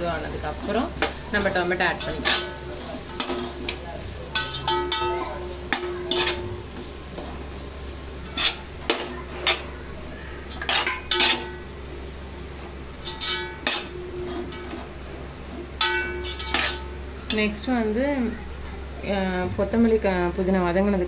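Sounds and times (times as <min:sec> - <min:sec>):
steady low hum: 0:00.0 - 0:21.0
metal ladle scraping a pot: 0:01.4 - 0:03.7, 0:05.8 - 0:06.5, 0:08.2 - 0:09.7, 0:10.5 - 0:11.7, 0:13.0 - 0:14.9, 0:15.5 - 0:17.5.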